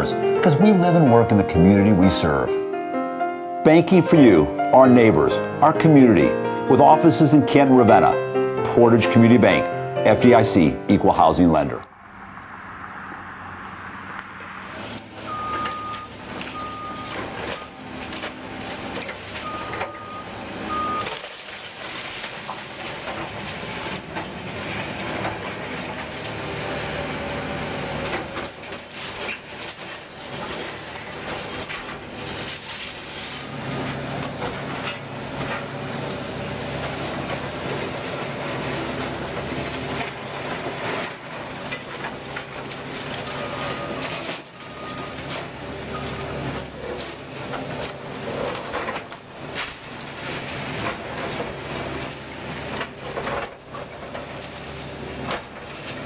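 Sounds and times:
diesel engines running: 0.0 - 56.0
reversing alarm beeping: 15.2 - 17.8, 19.4 - 21.2, 43.3 - 45.2.

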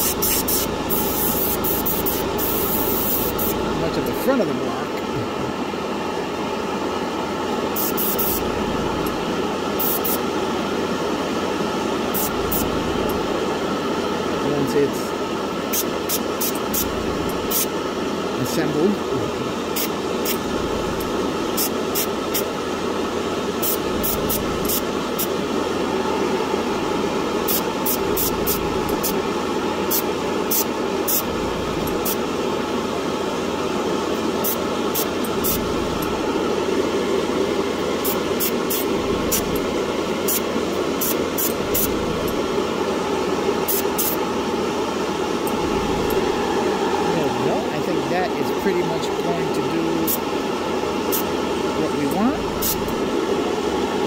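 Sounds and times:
airbrush spraying hisses: 0.0 - 3.6, 7.8 - 8.4, 52.6 - 53.0
extractor fan whoosh: 23.5 - 30.3, 41.4 - 54.0.

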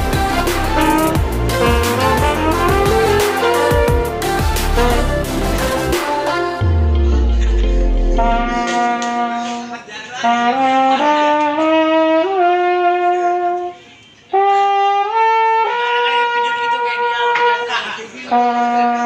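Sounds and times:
deep electronic bass music: 0.0 - 9.1
mellophone playing upward scale: 0.0 - 9.6.

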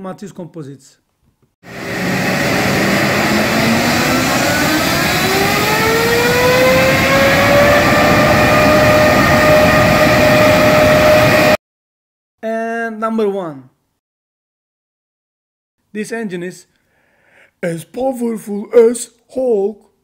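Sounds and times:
jet engine rush: 1.7 - 11.6
jet engine whine spooling up: 1.7 - 11.6.

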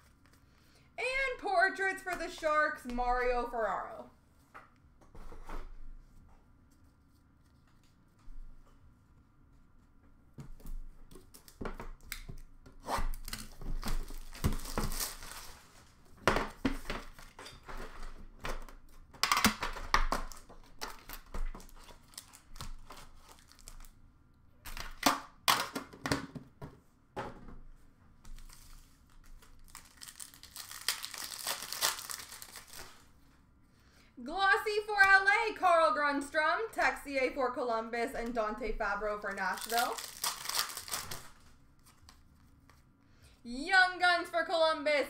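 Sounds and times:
wrappers tearing and crinkling: 12.9 - 16.0, 20.2 - 24.0, 28.4 - 33.1, 39.2 - 41.9.

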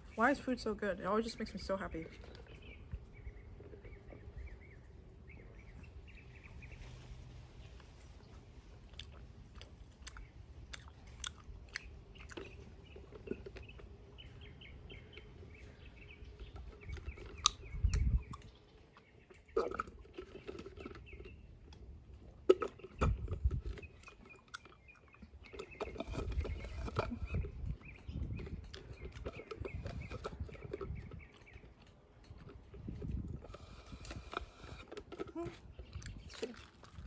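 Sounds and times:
person chewing: 7.7 - 37.0
wet mouth clicks: 8.9 - 13.8, 16.8 - 21.8
slurping through a straw: 19.4 - 37.0.

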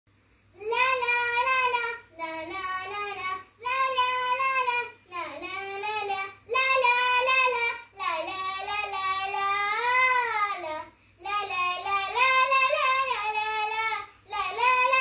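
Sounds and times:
girl singing unaccompanied: 0.4 - 15.0
short breaths: 10.9 - 11.2.

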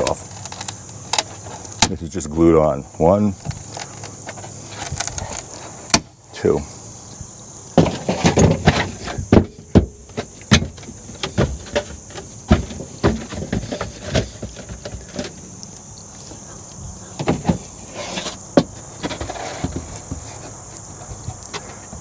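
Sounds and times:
foam knocking and squeaking: 7.7 - 15.4, 17.2 - 22.0
foam scraping: 17.4 - 20.7.

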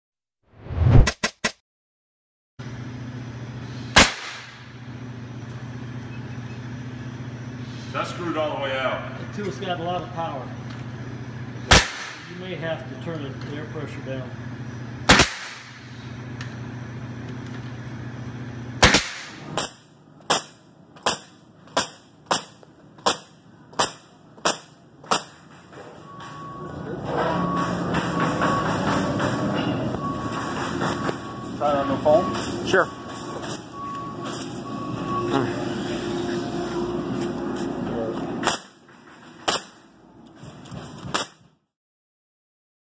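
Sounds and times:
steady low hum: 2.6 - 41.1
pneumatic nailer firing: 3.8 - 4.8, 11.6 - 12.4, 15.0 - 16.1, 18.8 - 25.6, 38.4 - 39.9, 40.6 - 41.6
steady drone with held tone: 25.7 - 38.2.

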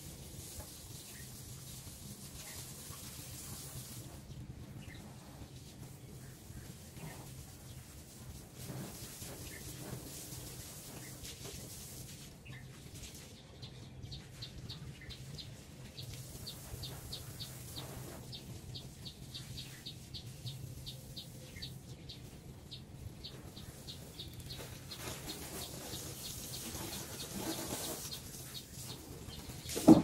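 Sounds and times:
water spraying from hose: 0.0 - 13.4, 14.2 - 30.0
bird chirping: 13.3 - 30.0.

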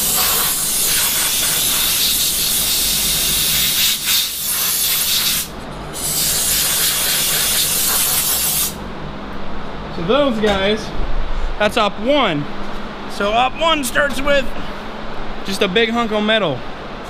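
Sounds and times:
compressed air blow gun hissing: 0.0 - 8.8.

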